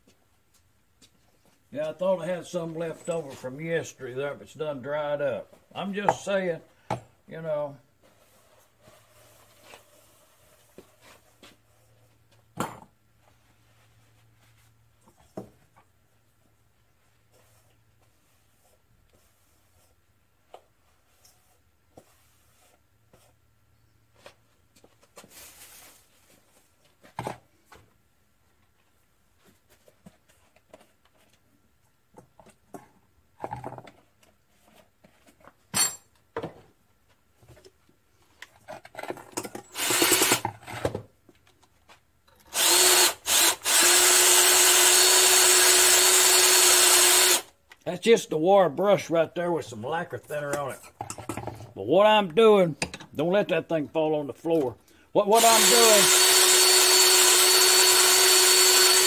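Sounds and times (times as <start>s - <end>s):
tools clinking on workbench: 35.7s - 36.2s
cordless drill whining: 39.7s - 40.4s, 42.5s - 47.5s, 55.3s - 59.0s.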